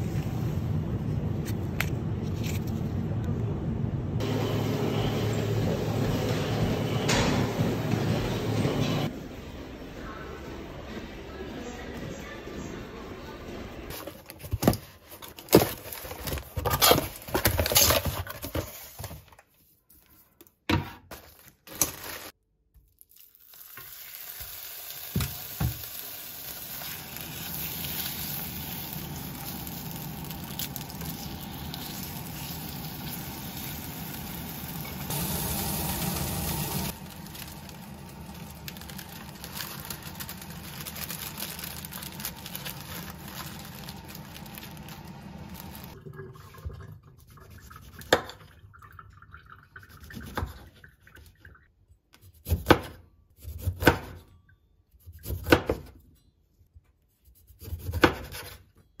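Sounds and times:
steak sizzling in a frying pan: 23.4s - 39.5s.

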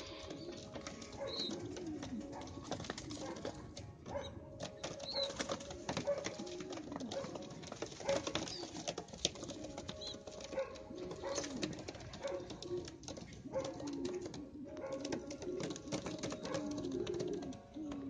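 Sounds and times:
pigeons cooing: 0.0s - 18.0s.

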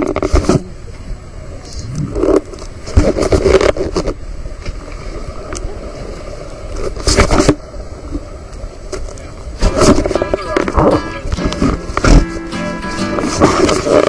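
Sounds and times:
river water rushing: 9.4s - 14.0s.

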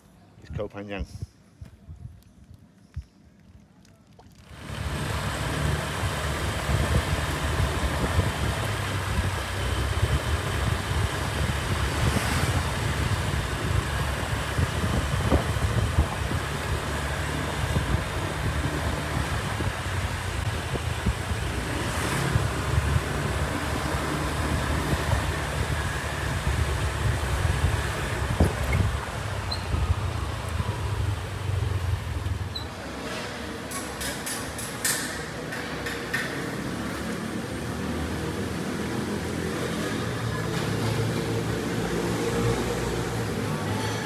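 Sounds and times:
scooter engine running: 4.5s - 32.6s
wind buffeting the microphone: 6.0s - 32.5s.

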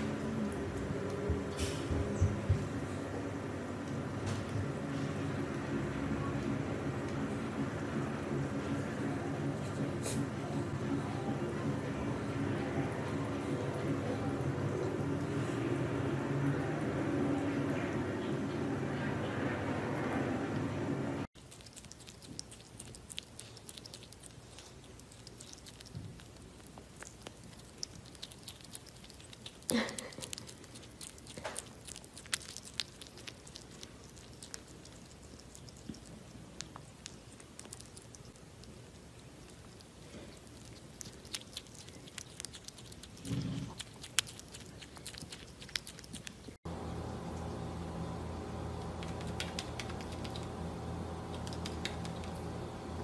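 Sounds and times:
marmoset chewing food: 0.0s - 18.6s, 21.3s - 46.7s, 48.8s - 52.7s.

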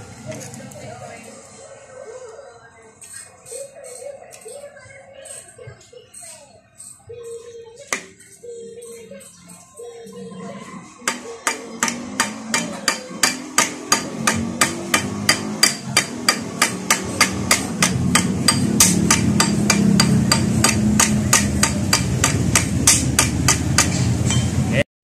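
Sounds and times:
hammer tapping on steel bar: 11.1s - 24.4s.

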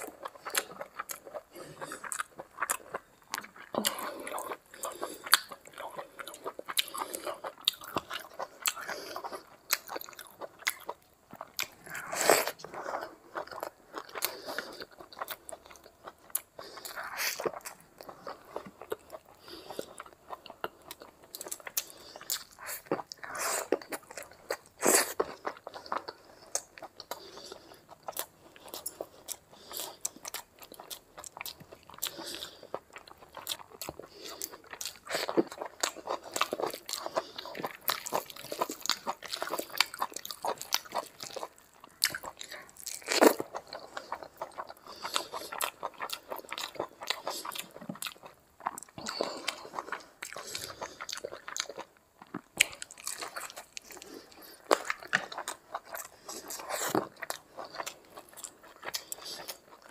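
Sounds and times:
person chewing with wet mouth clicks: 27.9s - 59.9s.

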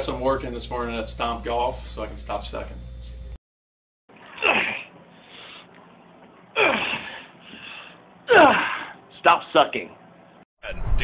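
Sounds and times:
man crying out: 8.3s - 9.0s.

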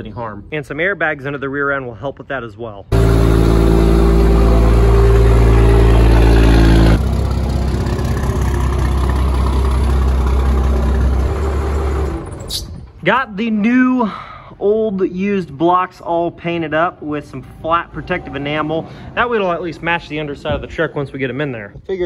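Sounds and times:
diesel pickup engine idling: 2.9s - 12.4s.

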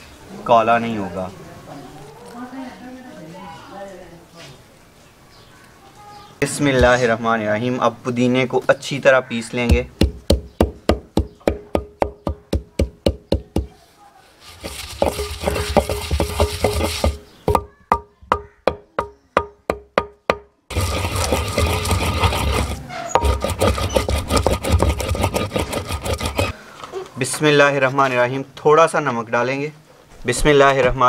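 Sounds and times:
wooden pestle pounding: 9.6s - 13.7s, 14.6s - 26.6s
pestle grinding with scraping rub: 14.4s - 17.7s, 20.7s - 26.6s.

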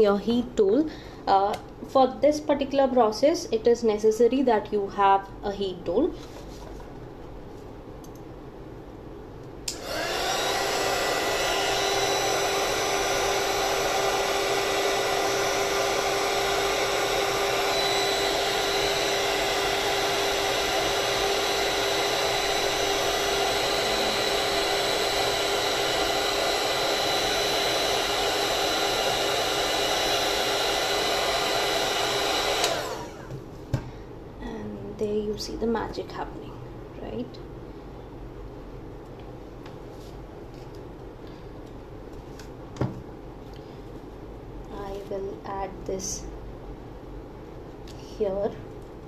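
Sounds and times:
heat gun fan humming: 9.5s - 34.0s.

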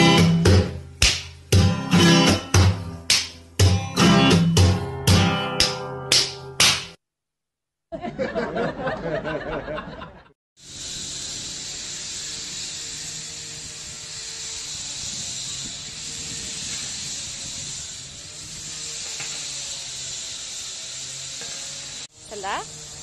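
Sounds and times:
guitar music: 0.0s - 6.7s
laughter: 7.9s - 10.4s
steady hiss: 10.6s - 23.0s.

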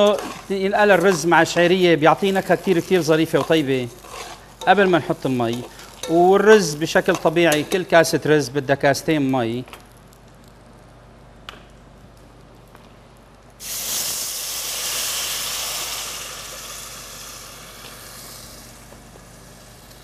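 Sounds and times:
hot pot hissing and sizzling: 0.0s - 8.4s, 13.5s - 20.0s.

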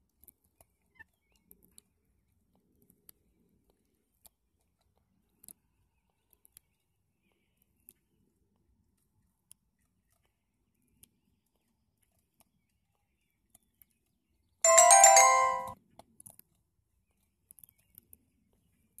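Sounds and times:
electronic ringtone melody: 14.7s - 15.8s.

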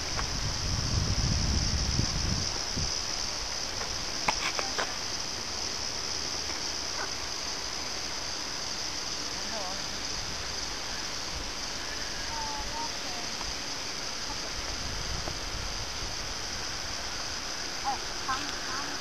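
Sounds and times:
wind rumble on microphone: 0.0s - 4.2s, 12.2s - 19.0s
insect chorus: 0.0s - 19.0s.

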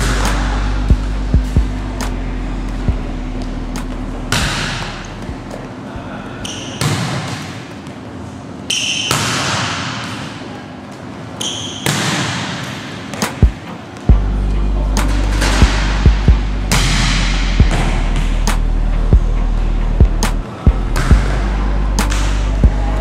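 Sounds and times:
sneakers squeaking on floor: 6.4s - 9.3s, 11.3s - 13.6s.

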